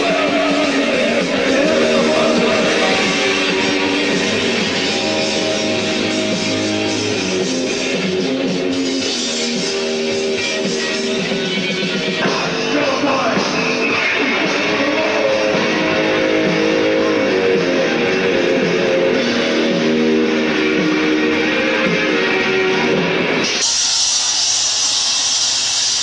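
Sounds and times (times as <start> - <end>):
guitar-led rock music: 0.0 - 26.0.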